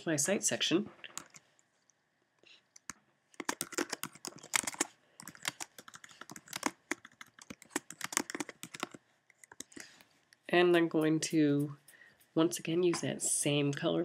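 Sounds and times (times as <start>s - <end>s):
keyboard key clicks: 2.8s - 9.8s.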